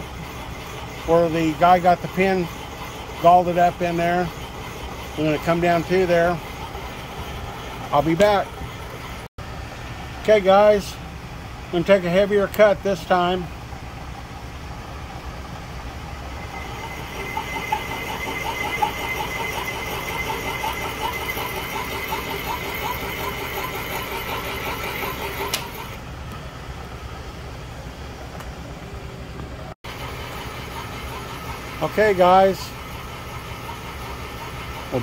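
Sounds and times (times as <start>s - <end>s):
high-pitched cutting whine: 0.0s - 9.3s, 16.0s - 26.0s
milling machine hum: 0.0s - 10.0s, 10.6s - 26.0s, 29.9s - 35.0s.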